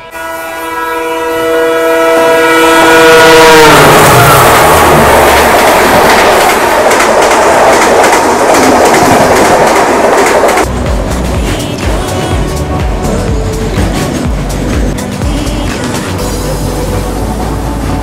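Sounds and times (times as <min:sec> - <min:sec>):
train horn chord: 0:00.0 - 0:05.2
train coaches rushing and rattling: 0:02.9 - 0:18.0.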